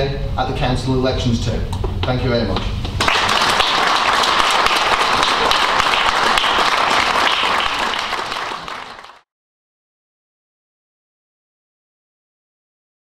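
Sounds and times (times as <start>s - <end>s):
audience applauding: 3.0s - 9.2s.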